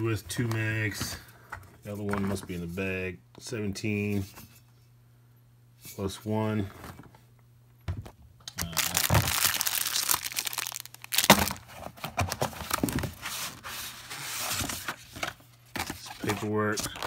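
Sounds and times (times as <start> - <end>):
paper and packaging rustling: 8.6 - 17.0.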